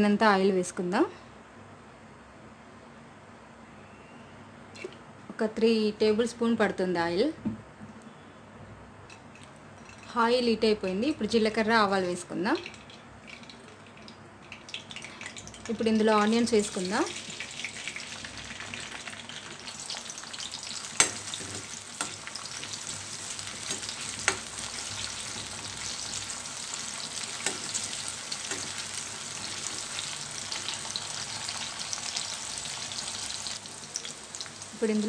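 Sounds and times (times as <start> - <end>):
onions sizzling in hot oil: 14.7 - 35.0.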